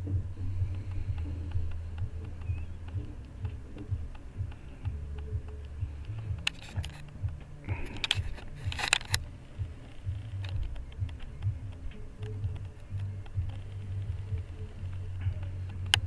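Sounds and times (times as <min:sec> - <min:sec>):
small clicks: 0:00.7 - 0:16.0
camera handling bumps: 0:07.9 - 0:09.2.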